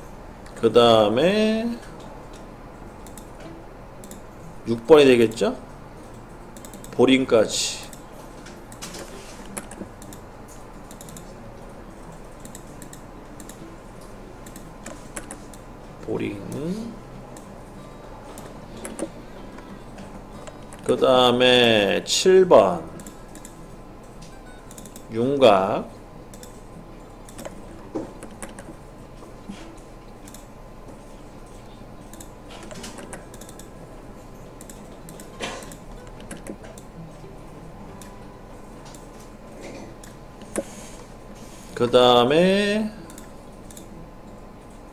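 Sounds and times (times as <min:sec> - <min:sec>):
faint electrical hum: 0:00.0 - 0:44.9
keyboard clicks: 0:02.3 - 0:03.4, 0:04.0 - 0:04.2, 0:06.0 - 0:07.0, 0:07.8 - 0:11.4, 0:12.1 - 0:13.6, 0:14.4 - 0:15.6, 0:18.3 - 0:19.7, 0:20.4 - 0:21.0, 0:23.0 - 0:25.1, 0:26.3 - 0:28.8, 0:30.2 - 0:30.5, 0:31.4 - 0:33.7, 0:34.6 - 0:36.9, 0:43.1 - 0:43.9
mouse and keyboard clicks: 0:08.7 - 0:10.2, 0:10.9 - 0:11.3, 0:14.4 - 0:15.6, 0:18.3 - 0:19.1, 0:24.7 - 0:25.1, 0:27.3 - 0:28.7, 0:32.1 - 0:33.7, 0:34.6 - 0:36.9, 0:40.0 - 0:40.8.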